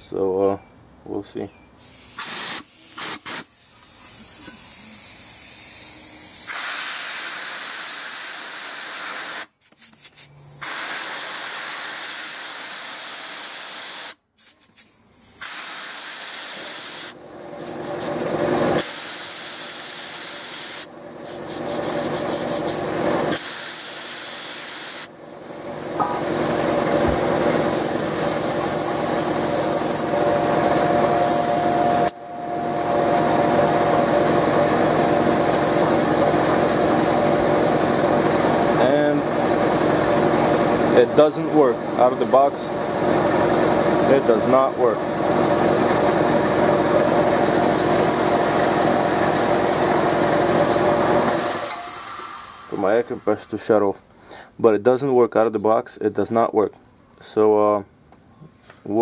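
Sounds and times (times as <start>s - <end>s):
compressed air hissing blasts: 1.8s - 32.2s, 51.2s - 53.5s
air compressor motor running: 1.8s - 53.5s.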